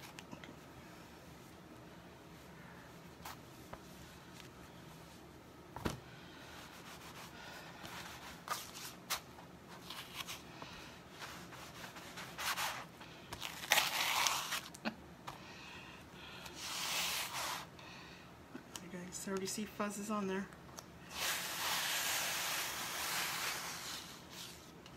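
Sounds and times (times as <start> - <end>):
towel rubbing and peeling: 11.1 - 14.8, 16.6 - 17.7, 21.1 - 24.8.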